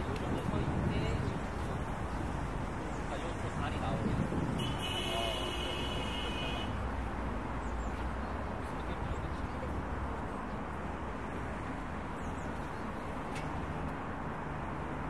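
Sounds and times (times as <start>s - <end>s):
distant road traffic drone: 0.0s - 15.0s.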